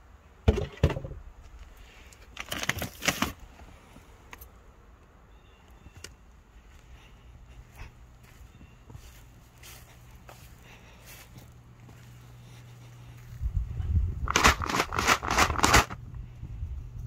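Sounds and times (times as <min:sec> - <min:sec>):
plastic bag crinkling rattle: 0:02.4 - 0:03.4, 0:14.3 - 0:16.0.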